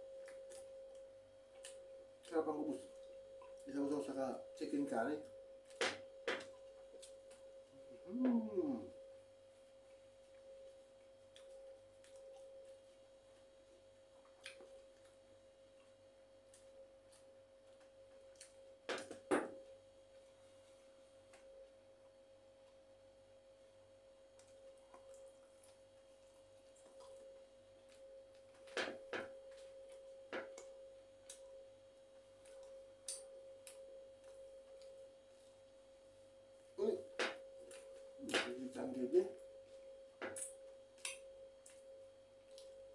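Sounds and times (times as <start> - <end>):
faint steady whine: 0.0 - 42.9
eating smacks and clicks: 0.2 - 4.0, 11.3 - 12.8, 14.2 - 15.2, 16.5 - 19.4, 24.4 - 25.8, 26.7 - 31.4, 32.4 - 35.0, 40.2 - 42.8.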